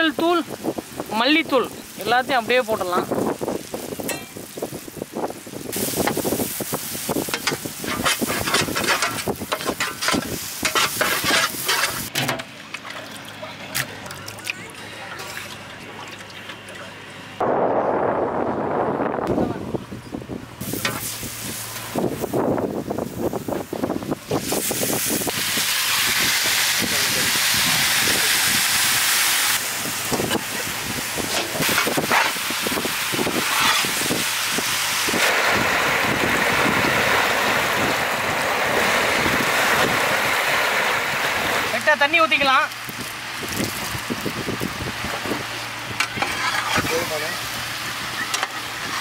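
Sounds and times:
masala sizzling in a pan: 0:00.0 - 0:12.1, 0:20.6 - 0:49.0
ladle stirring and scraping: 0:07.2 - 0:12.1, 0:46.0 - 0:47.0.

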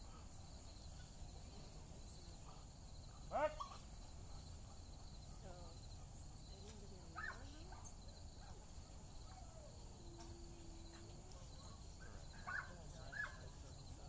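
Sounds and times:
crickets chirping: 0:00.0 - 0:14.0
short faint calls: 0:00.1 - 0:14.0.

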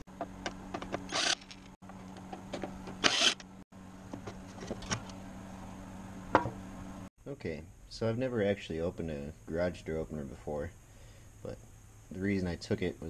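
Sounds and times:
cordless drill whirring: 0:01.1 - 0:01.7, 0:03.0 - 0:03.4
knock of cover: 0:06.3 - 0:06.6.

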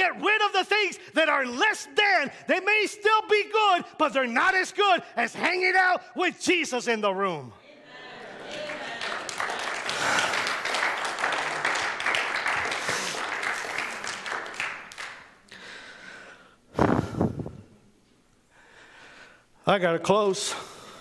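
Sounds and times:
crowd applauding: 0:08.2 - 0:15.5.

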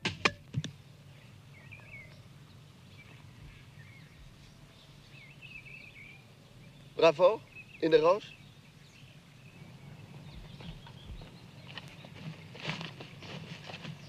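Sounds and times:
low steady hum: 0:00.0 - 0:14.0
small birds chirping: 0:00.6 - 0:14.0.

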